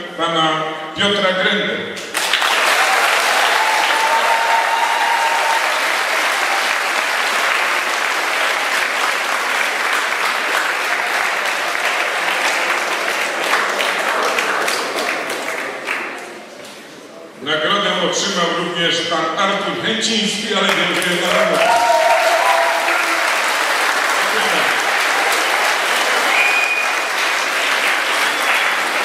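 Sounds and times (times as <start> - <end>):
audience applauding: 2.1 - 16.4, 20.7 - 29.0.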